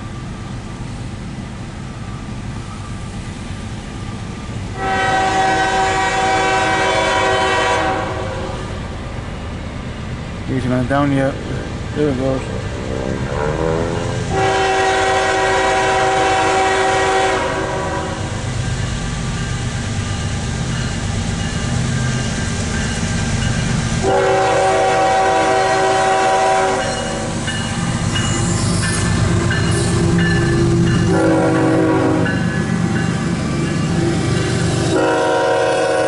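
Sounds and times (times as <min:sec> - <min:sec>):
locomotive rumble: 0:00.0 - 0:36.0
locomotive air horn blasts: 0:04.8 - 0:08.6, 0:13.4 - 0:18.4, 0:24.0 - 0:27.2, 0:31.1 - 0:32.4, 0:34.9 - 0:36.0.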